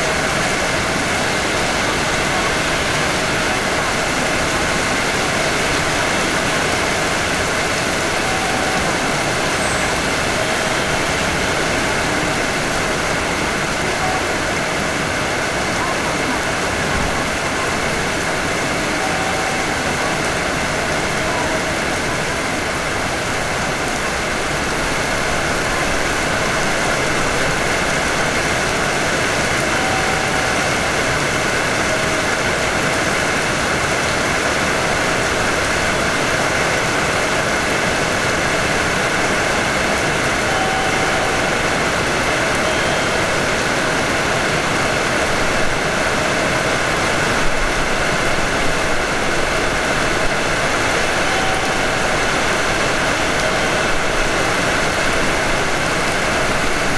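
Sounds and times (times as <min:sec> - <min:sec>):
electric train running: 0:00.0 - 0:56.9.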